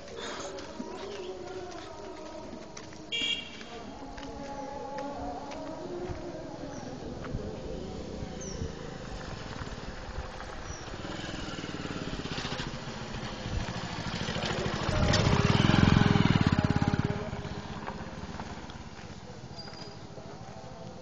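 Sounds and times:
small engine passing by: 0:08.0 - 0:20.2.

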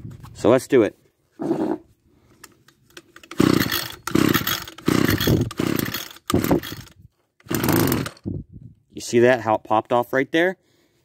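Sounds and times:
recoil cord pulls: 0:02.4 - 0:08.3
two-stroke engine popping: 0:03.2 - 0:08.2.

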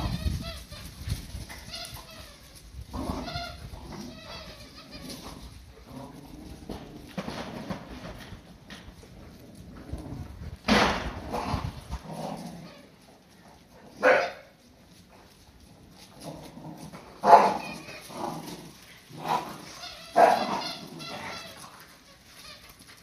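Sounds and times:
dogs barking and yipping: 0:00.0 - 0:05.7, 0:13.6 - 0:14.7, 0:16.8 - 0:23.0.

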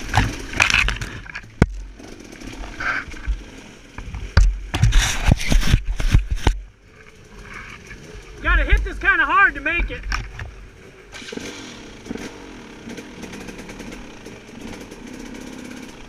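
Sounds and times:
dirt bike engine buzzing: 0:00.0 - 0:16.0
knocks and clatters: 0:04.0 - 0:06.7.

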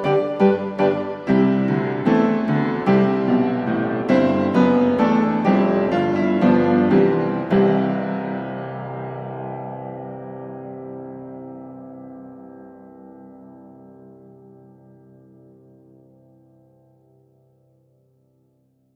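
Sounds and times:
piano music: 0:00.0 - 0:17.8.

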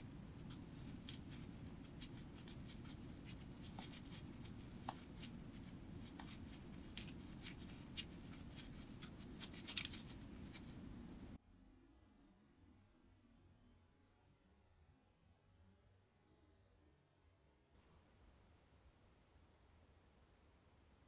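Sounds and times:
pliers ticking and scraping on spring: 0:00.0 - 0:10.6
steady low hum: 0:00.0 - 0:11.4.

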